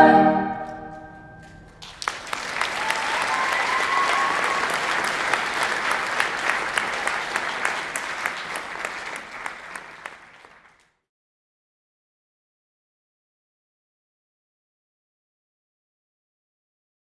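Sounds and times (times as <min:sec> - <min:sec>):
audience applauding: 0:01.7 - 0:10.9.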